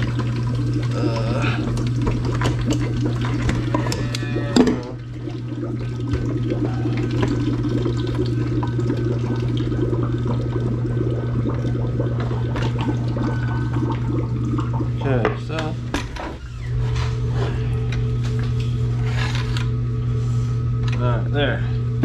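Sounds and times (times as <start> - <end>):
liquid splashing into bucket: 0.0 - 15.2
steady low hum: 0.0 - 22.0.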